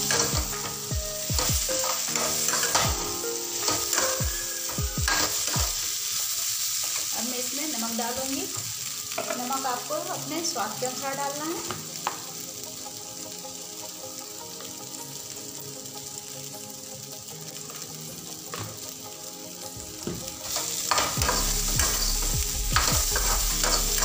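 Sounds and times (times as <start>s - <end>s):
metal spatula scraping a pan: 0.0s - 7.1s, 20.4s - 24.0s
vegetables sizzling in a pan: 0.0s - 24.0s.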